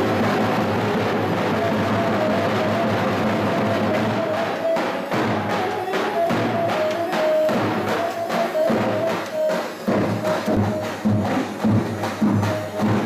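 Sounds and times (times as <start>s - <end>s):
bass drum beating dance rhythm: 6.2s - 13.0s.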